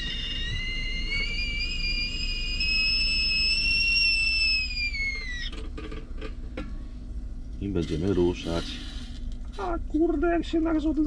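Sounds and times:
kettle whistling: 0:00.0 - 0:05.7.

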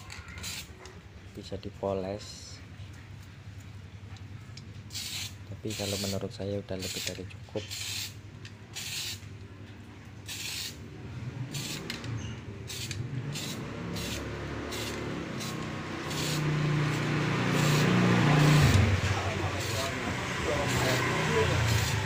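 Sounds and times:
spray can hissing: 0:00.4 - 0:00.7, 0:04.9 - 0:08.2, 0:08.8 - 0:09.2, 0:10.2 - 0:10.8, 0:11.5 - 0:12.0, 0:12.6 - 0:22.0
passing vehicle engine hum: 0:10.8 - 0:22.0.

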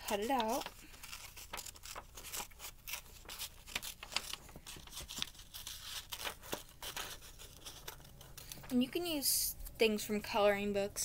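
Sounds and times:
scissors snipping paper: 0:00.0 - 0:08.7
paper rustling: 0:00.0 - 0:09.2.

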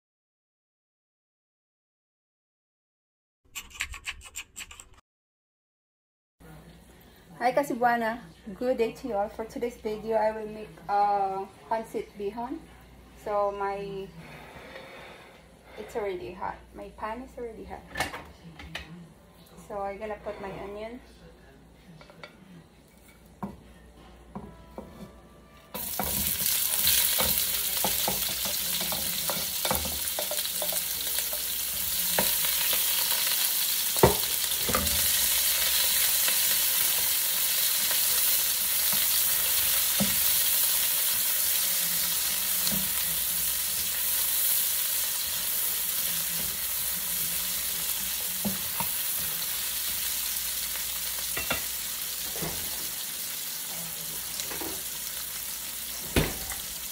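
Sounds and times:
onions sizzling in a wok: 0:25.7 - 0:56.9
spatula scraping and tapping pan: 0:25.8 - 0:33.3.

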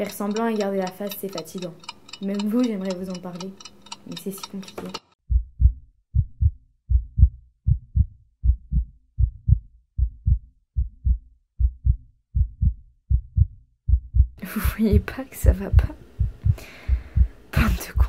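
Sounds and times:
heartbeat: 0:05.2 - 0:18.0.

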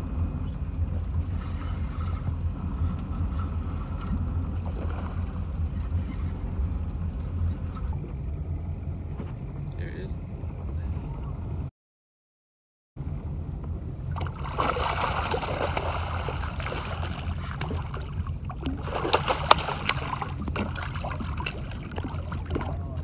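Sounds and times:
low hum: 0:00.0 - 0:11.7, 0:13.0 - 0:23.0
fish thrashing in water: 0:14.1 - 0:23.0.

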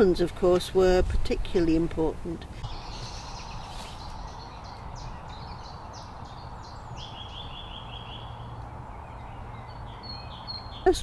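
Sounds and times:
songbirds chirping: 0:00.0 - 0:11.0
bird trill: 0:02.7 - 0:11.0.

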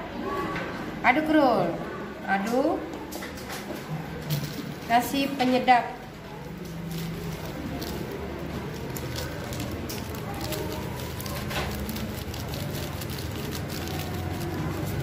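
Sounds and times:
hands squeezing wet mince: 0:06.5 - 0:15.0
seasoning sachet shaken: 0:06.5 - 0:15.0.

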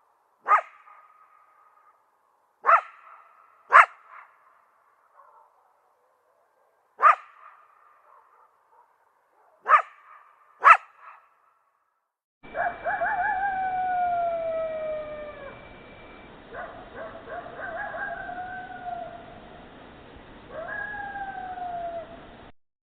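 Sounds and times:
jackals howling: 0:12.5 - 0:19.4, 0:20.5 - 0:22.4.

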